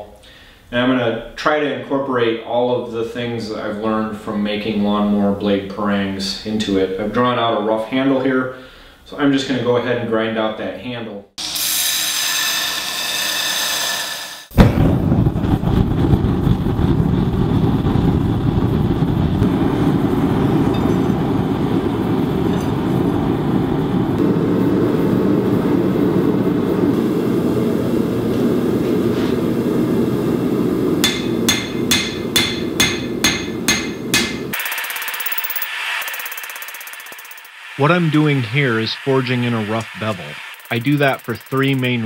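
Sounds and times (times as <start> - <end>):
gas forge burning: 11.5 - 34.6, 37.6 - 42.0
hammer striking steel on anvil: 31.0 - 35.6.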